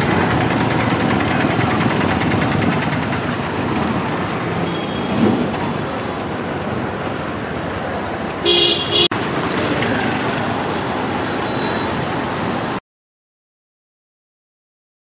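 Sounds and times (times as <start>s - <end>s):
street traffic noise: 0.0s - 12.8s
vehicle horn honk: 8.4s - 9.1s.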